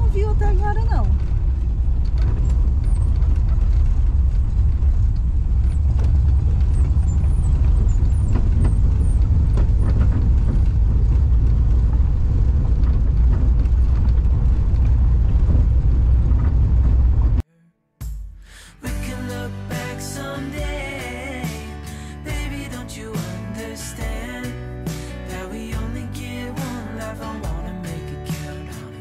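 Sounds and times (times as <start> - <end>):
van engine and tyres rumbling: 0.0 - 17.4.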